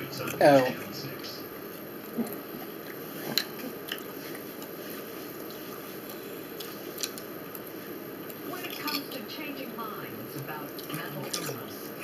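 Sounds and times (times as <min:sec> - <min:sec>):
person chewing food: 0:01.6 - 0:09.0.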